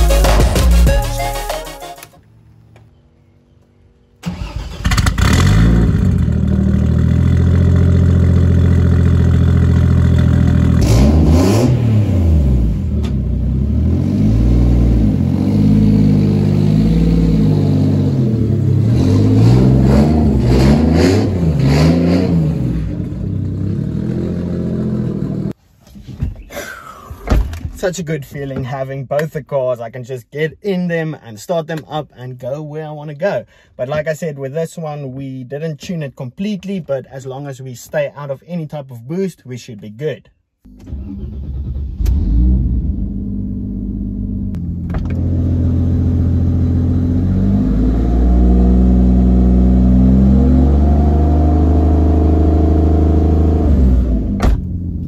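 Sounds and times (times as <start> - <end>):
car engine idling and revving: 2.2 - 25.6, 40.7 - 55.0.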